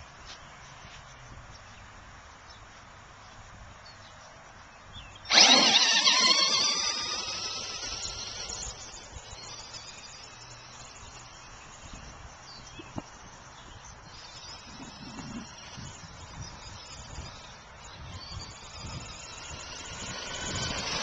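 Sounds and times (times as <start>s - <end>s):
toy truck motor whine: 5.3s - 21.0s.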